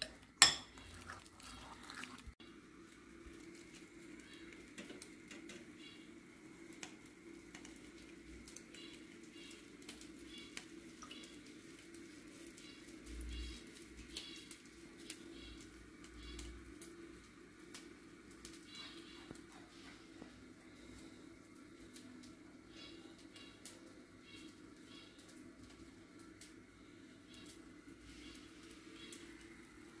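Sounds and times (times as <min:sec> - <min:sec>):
faint high chirps: 0:22.7 - 0:25.4.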